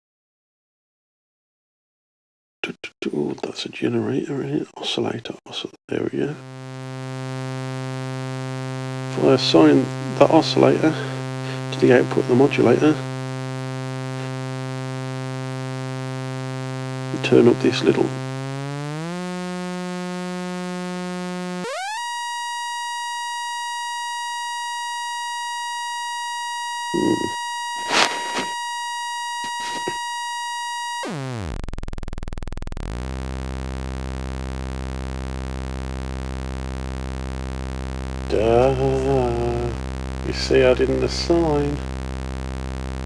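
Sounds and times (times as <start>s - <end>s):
buzzy synth tone gliding: 6.3s - 43.0s
short noises: 26.9s - 28.7s.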